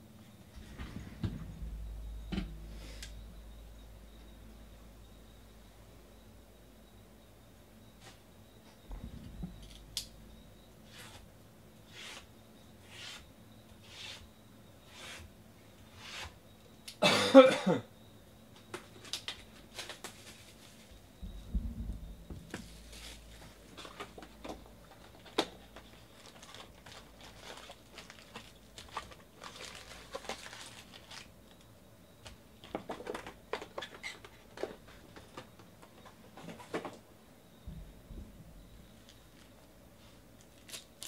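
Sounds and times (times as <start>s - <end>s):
low thud: 0.6s - 2.7s, 8.9s - 9.6s, 21.2s - 22.5s
person coughing: 17.0s - 17.9s
foil wrappers and cardboard rustling: 18.8s - 21.0s, 22.5s - 31.6s, 40.4s - 41.0s.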